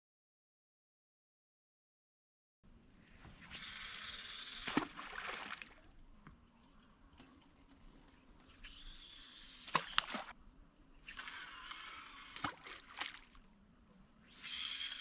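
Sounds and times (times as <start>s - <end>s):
fishing reel hissing rush: 3.4s - 4.8s, 8.7s - 10.1s, 11.1s - 12.6s, 14.2s - 15.0s.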